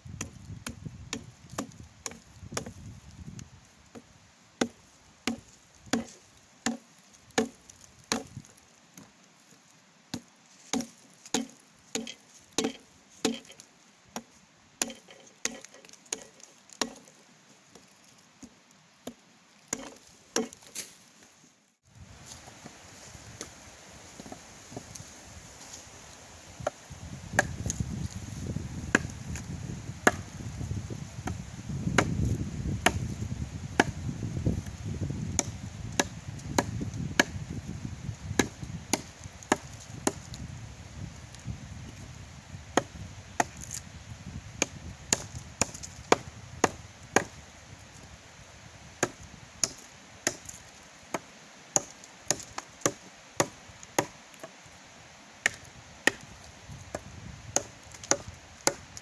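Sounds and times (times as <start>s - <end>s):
wood being chopped: 0.2s - 9.1s, 10.1s - 17.1s, 17.7s - 20.9s, 26.6s - 30.4s, 31.2s - 33.2s, 33.8s - 34.1s, 35.3s - 37.4s, 38.4s - 40.4s, 42.8s - 43.8s, 44.6s - 47.4s, 49.0s - 54.6s, 55.4s - 59.0s.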